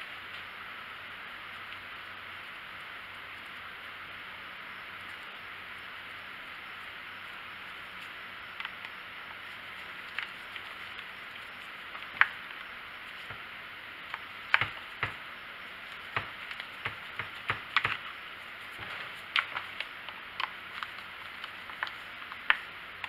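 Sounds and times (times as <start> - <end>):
plastic clicks and knocks: 14.5 - 15.2.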